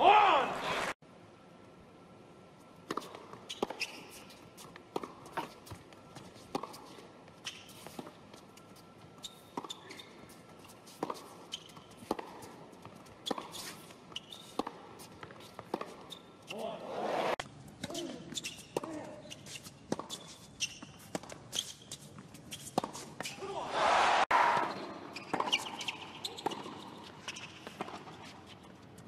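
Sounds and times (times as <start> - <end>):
tennis ball bouncing on hard court: 4.9 - 5.5, 6.5 - 6.8, 12.0 - 12.4, 14.5 - 16.0, 19.9 - 20.2.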